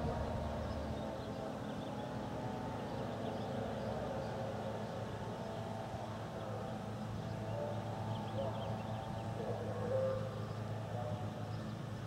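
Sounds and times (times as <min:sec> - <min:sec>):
distant loudspeaker warning announcement: 0:00.0 - 0:01.6, 0:06.2 - 0:12.0.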